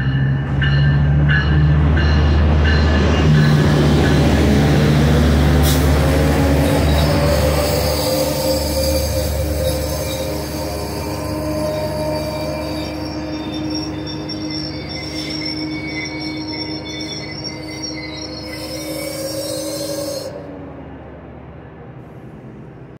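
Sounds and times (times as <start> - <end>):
low rumble of rolling coaches: 0.0 - 22.9
train wheels squealing: 5.4 - 20.5.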